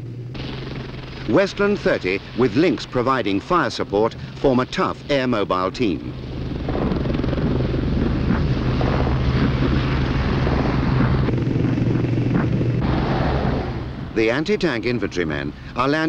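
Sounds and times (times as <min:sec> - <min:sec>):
helicopter rotor and turbine noise: 0:00.0 - 0:16.0
strong low hum: 0:00.0 - 0:16.0.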